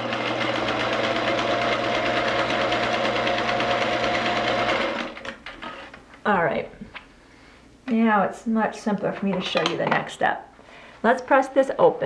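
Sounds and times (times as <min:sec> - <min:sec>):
sewing machine stitching: 0:00.0 - 0:05.8.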